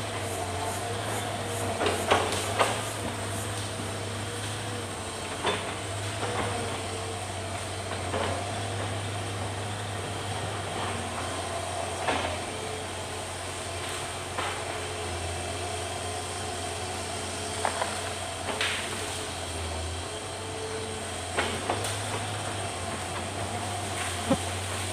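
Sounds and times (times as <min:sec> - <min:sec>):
excavator diesel engine running: 0:00.0 - 0:24.9.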